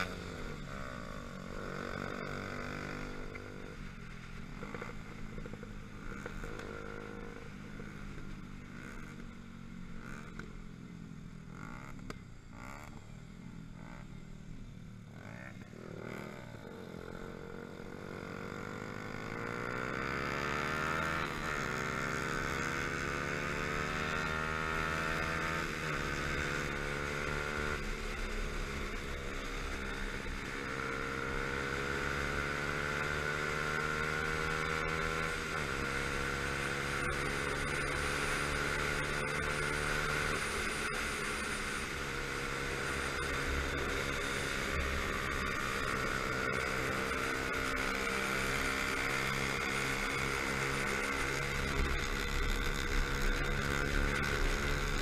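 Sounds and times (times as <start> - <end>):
motorcycle engine revving through gears: 0.0 - 55.0.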